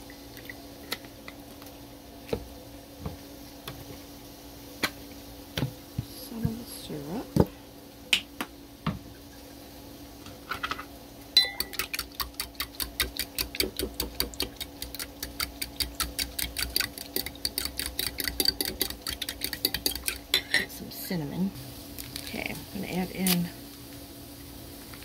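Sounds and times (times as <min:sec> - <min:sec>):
fork beating eggs in a bowl: 0:11.4 - 0:20.7.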